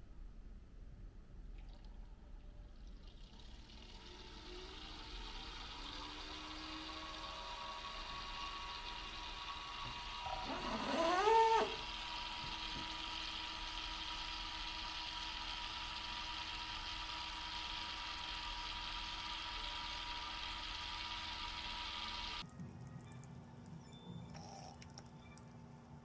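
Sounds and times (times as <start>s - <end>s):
water pump humming with whine: 1.4s - 26.0s.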